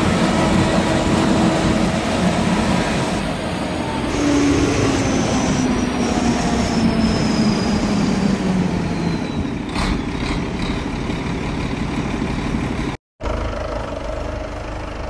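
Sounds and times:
heavy machine drone and whine: 0:00.0 - 0:15.0.

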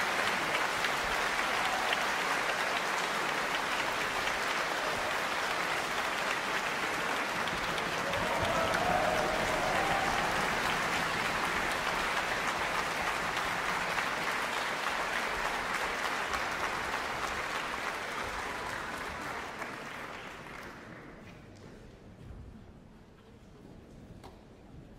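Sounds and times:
audience applauding: 0:00.0 - 0:21.3.

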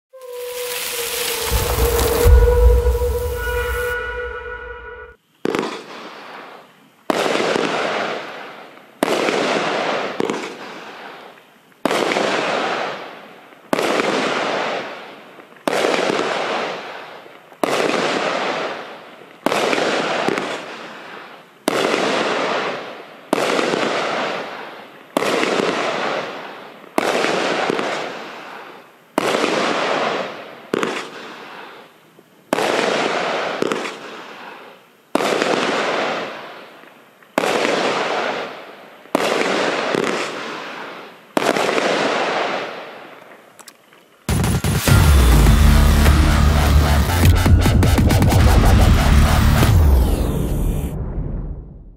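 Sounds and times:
firework bangs: 0:00.2 - 0:08.4, 0:09.0 - 0:11.2, 0:13.7 - 0:15.0, 0:17.6 - 0:28.6, 0:29.2 - 0:31.6, 0:32.5 - 0:34.4, 0:35.2 - 0:36.4, 0:37.4 - 0:42.9.

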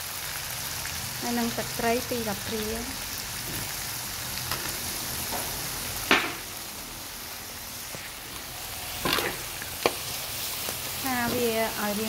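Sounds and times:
meat sizzling in a wok: 0:00.0 - 0:12.0.

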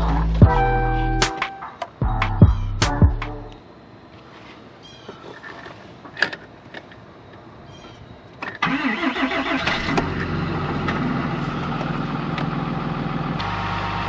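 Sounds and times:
diesel engine starting and idling: 0:08.6 - 0:14.0.

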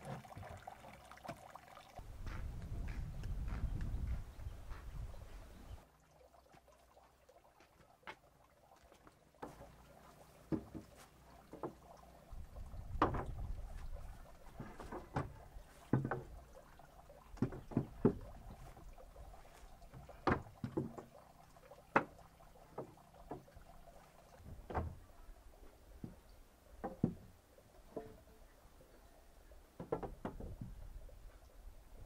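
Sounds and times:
wooden poles knocking on wood: 0:10.5 - 0:11.8, 0:12.9 - 0:13.5, 0:14.5 - 0:16.4, 0:17.4 - 0:18.8, 0:19.9 - 0:21.1, 0:21.9 - 0:22.2, 0:26.8 - 0:27.3, 0:29.8 - 0:30.7.

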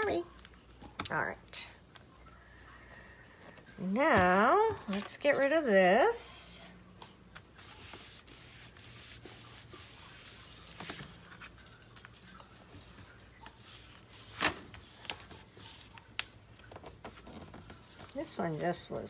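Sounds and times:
paper rustling: 0:07.3 - 0:18.2.

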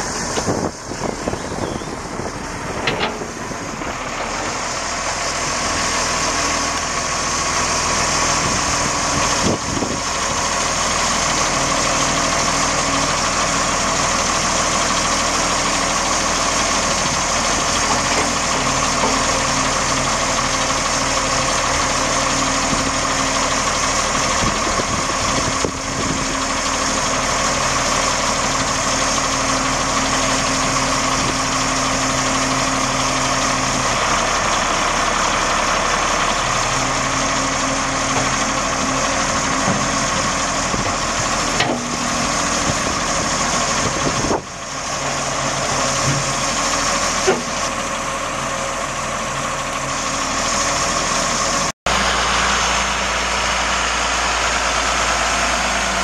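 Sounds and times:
diesel engine running: 0:00.0 - 0:56.0.

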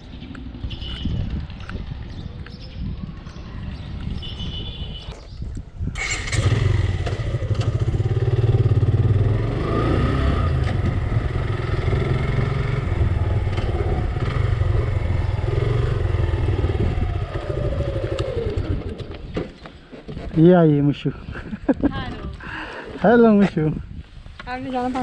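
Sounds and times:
motorcycle engine running: 0:06.0 - 0:19.1.

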